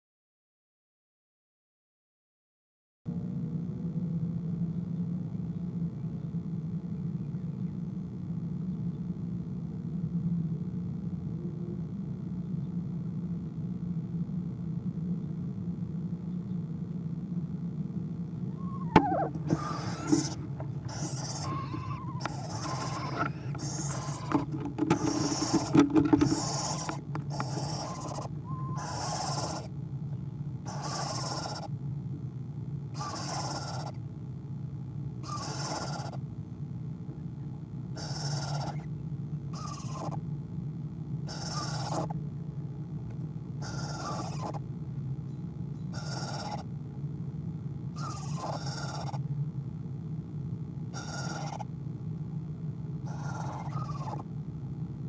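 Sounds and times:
low background hum and rumble: 0:03.1 - 0:55.0
owl soft pulsed calls: 0:18.5 - 0:31.7, 0:32.9 - 0:34.0, 0:35.2 - 0:36.2, 0:37.9 - 0:40.2, 0:41.2 - 0:42.2, 0:43.6 - 0:44.7, 0:45.3 - 0:46.7, 0:47.9 - 0:49.2, 0:50.9 - 0:51.7, 0:53.0 - 0:54.3
owl raspy hiss: 0:18.6 - 0:29.8, 0:30.6 - 0:31.7, 0:32.9 - 0:34.0, 0:35.2 - 0:36.2, 0:38.0 - 0:38.9, 0:39.5 - 0:40.2, 0:41.3 - 0:42.2, 0:43.6 - 0:44.6, 0:45.9 - 0:46.7, 0:48.0 - 0:49.2, 0:50.9 - 0:51.7, 0:53.0 - 0:54.3.

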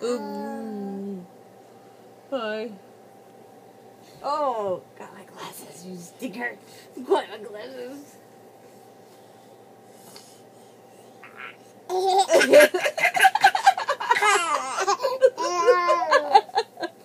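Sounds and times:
baby laughing: 0:11.2 - 0:16.6
woman laughing: 0:12.3 - 0:17.0.

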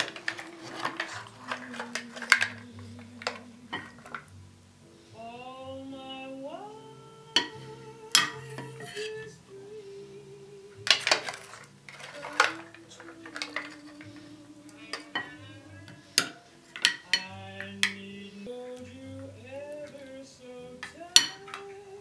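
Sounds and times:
shells and ladle clinking on pot: 0:00.0 - 0:04.3, 0:08.2 - 0:09.2, 0:10.9 - 0:19.2, 0:20.8 - 0:21.7.

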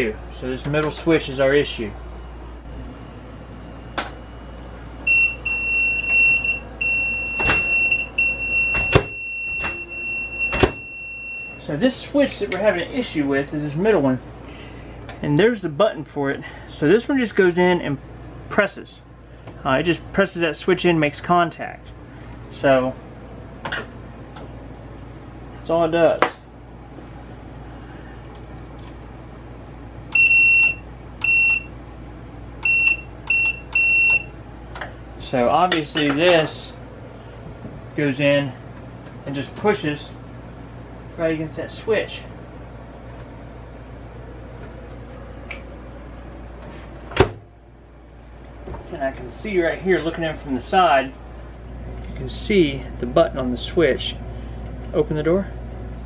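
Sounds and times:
continuity tester high beep: 0:02.8 - 0:11.6, 0:30.1 - 0:31.8, 0:32.6 - 0:34.4.

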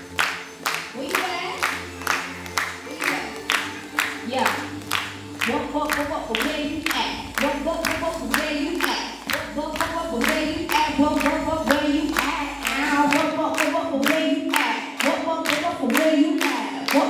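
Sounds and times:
woman singing into microphone: 0:05.4 - 0:17.0.

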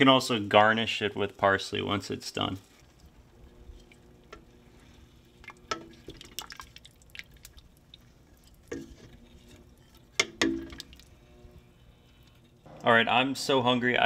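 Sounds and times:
liquid sloshing in a pot: 0:02.6 - 0:12.7
spoon knocking against pot: 0:10.2 - 0:10.8.

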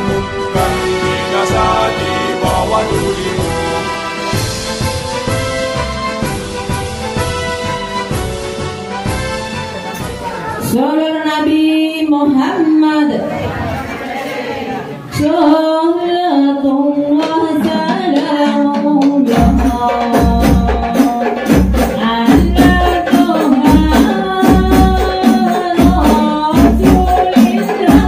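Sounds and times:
frame drums beating: 0:00.0 - 0:10.8, 0:17.1 - 0:28.0
women singing in unison: 0:12.8 - 0:28.0.

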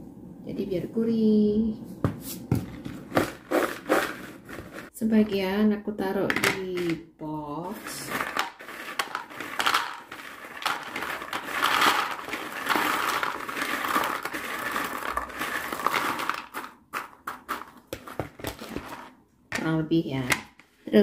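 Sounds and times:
crackers tumbling into plastic box: 0:07.8 - 0:19.2.

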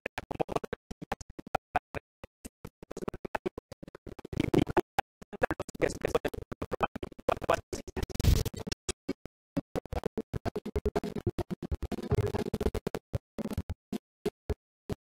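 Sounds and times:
stuttering background music: 0:02.8 - 0:08.9, 0:09.8 - 0:13.8.

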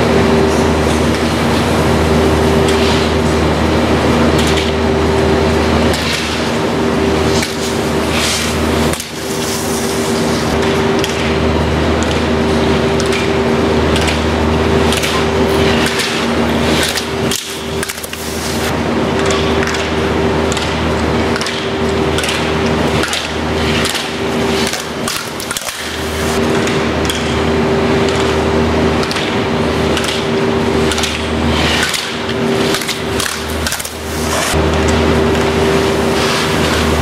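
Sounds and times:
machinery hum: 0:00.0 - 0:37.0.

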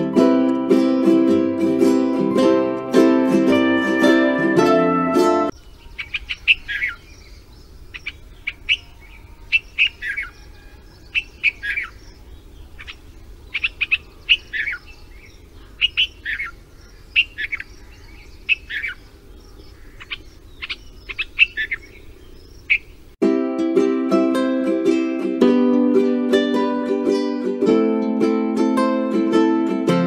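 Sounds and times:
bird chirping: 0:05.4 - 0:23.2.

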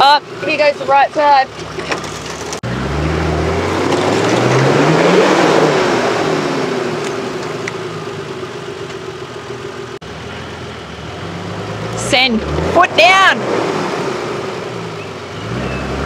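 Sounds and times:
engine revving under load: 0:00.3 - 0:08.4, 0:09.9 - 0:16.0
tyres scrabbling in dirt: 0:00.8 - 0:02.7, 0:03.5 - 0:05.2.

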